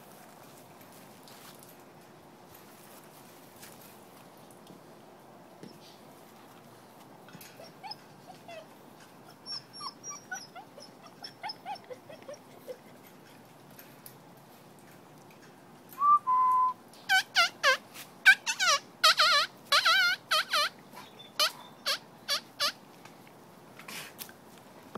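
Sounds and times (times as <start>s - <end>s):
puppies whimpering and yelping: 7.4s - 13.2s, 17.1s - 22.8s.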